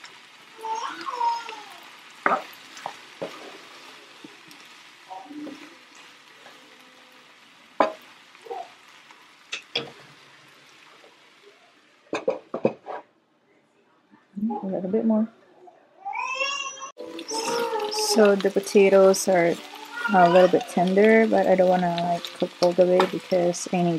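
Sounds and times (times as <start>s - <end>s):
food sizzling in frying pan: 0.0s - 12.8s, 17.0s - 23.9s
wooden spatula scraping pan: 12.7s - 13.1s.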